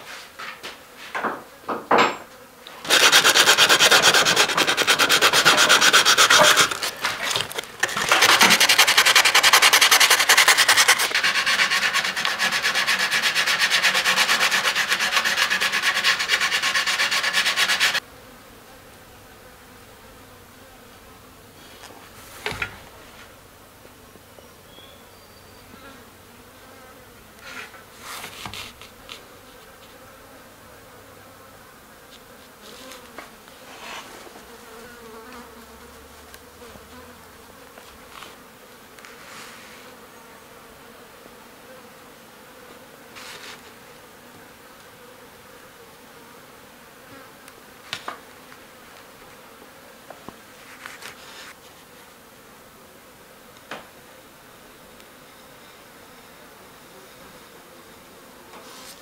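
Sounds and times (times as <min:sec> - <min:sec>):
hand tool rasping along wood: 0:02.8 - 0:18.0.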